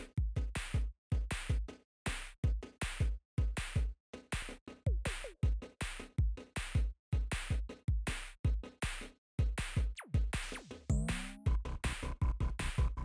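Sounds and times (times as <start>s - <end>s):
electronic music with drum-machine beat: 0.0s - 13.0s.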